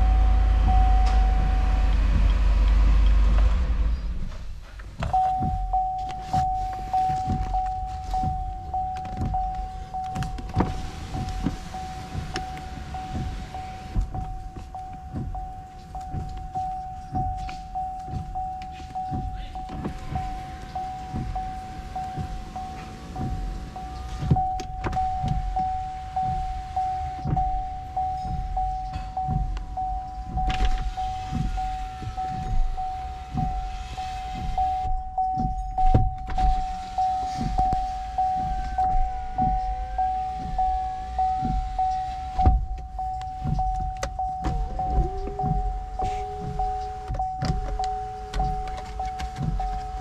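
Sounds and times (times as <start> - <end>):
power window motors: 0.0 - 50.0
soft low thuds: 0.0 - 50.0
pulsing high-pitched tone: 14.8 - 49.6.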